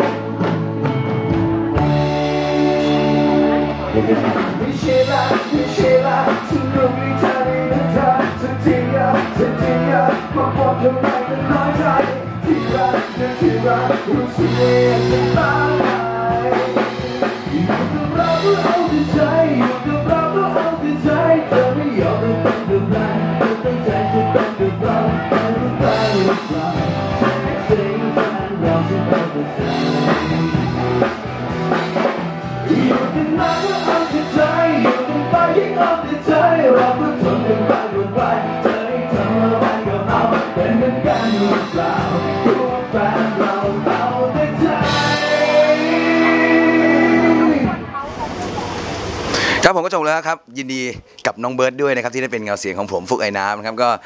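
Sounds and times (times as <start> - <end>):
drum kit steady beat: 0.0 - 49.6
loud backing music: 0.0 - 49.6
man singing into a microphone: 3.9 - 31.1, 32.6 - 47.9.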